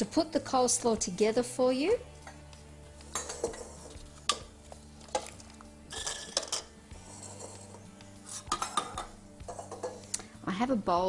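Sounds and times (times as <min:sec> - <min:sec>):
steel bowls clinking and knocking: 0:03.1 - 0:10.1.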